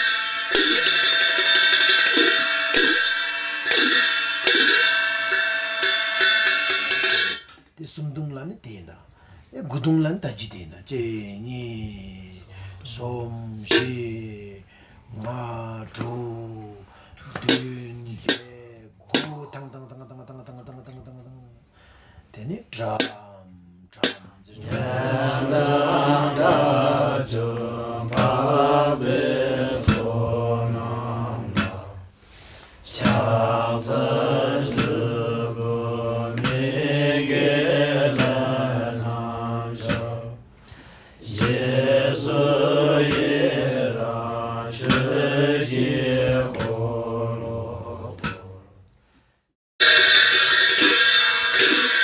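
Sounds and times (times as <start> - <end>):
monks chanting: 0.0 - 3.1, 24.0 - 32.1, 32.8 - 40.5, 41.2 - 48.8.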